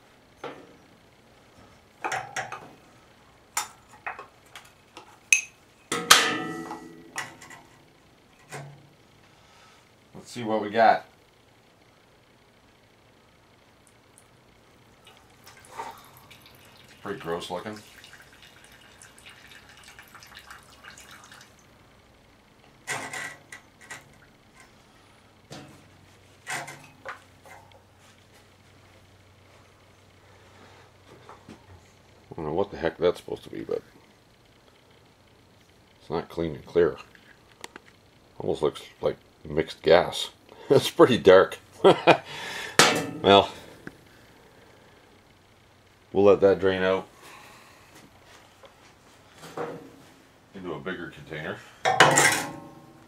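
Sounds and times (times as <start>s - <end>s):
fuel trickling into a mug: 15.0s - 21.7s.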